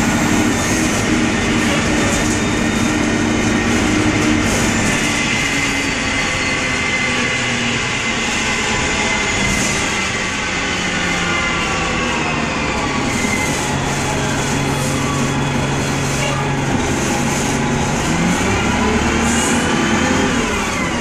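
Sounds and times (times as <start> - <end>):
bus engine running: 0.0 - 21.0
road noise: 0.0 - 21.0.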